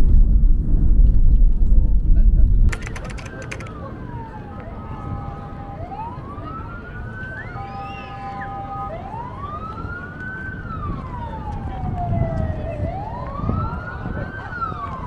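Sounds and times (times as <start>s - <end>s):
low background rumble: 0.0s - 2.7s
emergency vehicle siren wailing: 2.7s - 15.0s.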